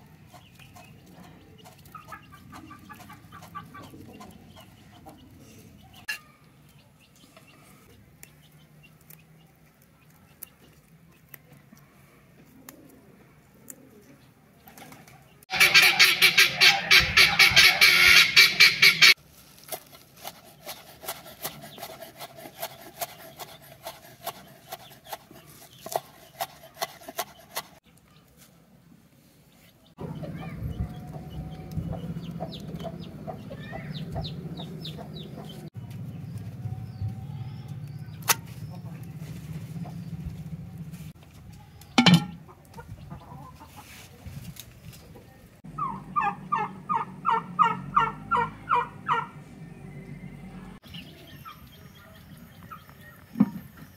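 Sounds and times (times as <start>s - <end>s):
fowl calling short falling notes: 15.5s - 19.2s.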